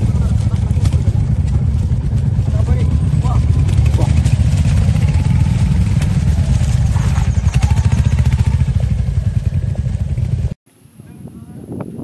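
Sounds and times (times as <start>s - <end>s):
clatter: 0.0s - 9.0s
motorcycle engine rumble: 0.0s - 12.0s.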